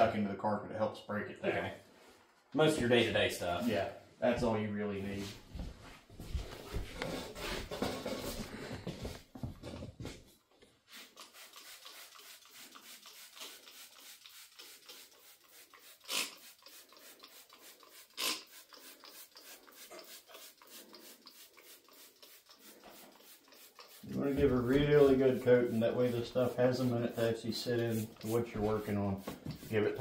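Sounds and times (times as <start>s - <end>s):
aerosol can spraying: 10.9s - 30.0s.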